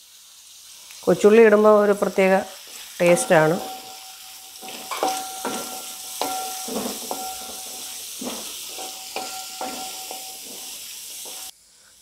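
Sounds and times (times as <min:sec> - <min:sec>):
onions sizzling in hot oil: 0:00.0 - 0:11.7
spatula scraping ringing pan: 0:03.0 - 0:11.5.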